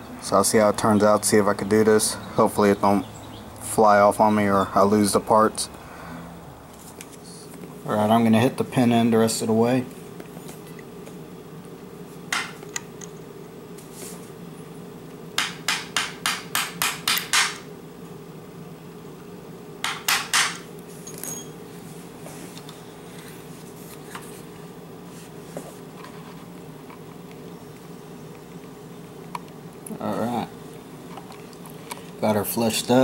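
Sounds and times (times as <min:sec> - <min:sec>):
hammer tapping metal punch: 0:15.4 - 0:17.6, 0:19.8 - 0:20.6.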